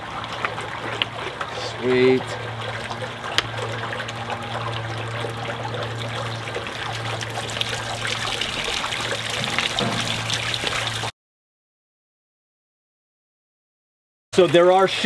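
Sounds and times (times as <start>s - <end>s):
fountain water bubbling and trickling: 0.0s - 11.1s
steady low hum: 0.0s - 11.1s.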